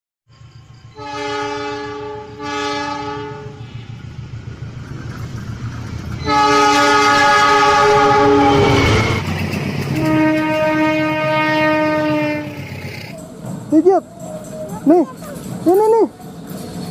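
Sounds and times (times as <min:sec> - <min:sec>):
train rumbling: 0:00.3 - 0:16.9
locomotive air horn blasts: 0:01.0 - 0:04.0, 0:06.2 - 0:09.2, 0:09.9 - 0:12.7.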